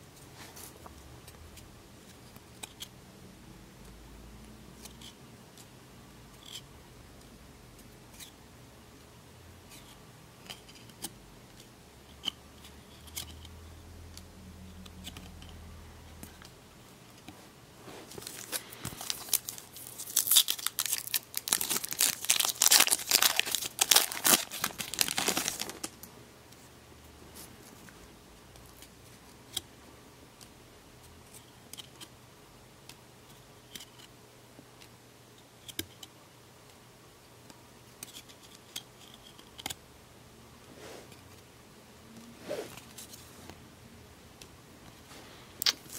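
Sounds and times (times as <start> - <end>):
wrapper torn and crinkled: 18.2 - 26.0.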